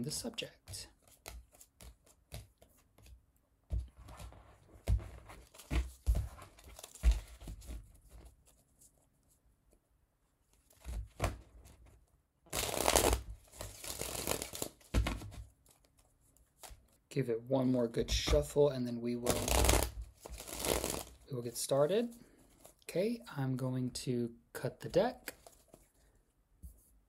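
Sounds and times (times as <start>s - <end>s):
cards riffle-shuffled: 0.6s - 3.2s, 12.5s - 17.0s, 19.2s - 21.2s.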